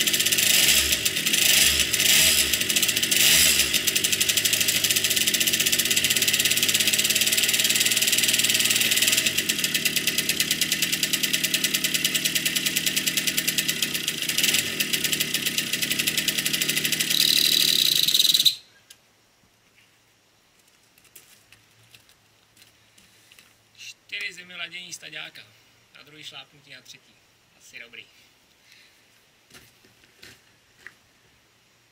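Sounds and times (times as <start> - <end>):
moped engine running: 0.0 - 18.5.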